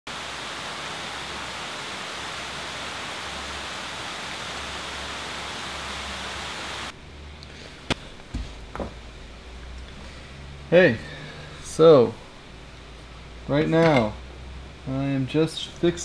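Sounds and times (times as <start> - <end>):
heavy rain falling: 0.1 - 7.0.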